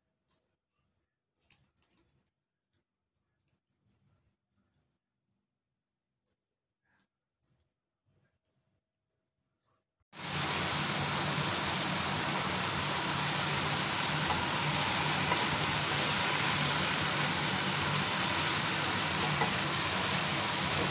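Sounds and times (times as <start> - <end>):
food sizzling in a wok: 10.2 - 20.9.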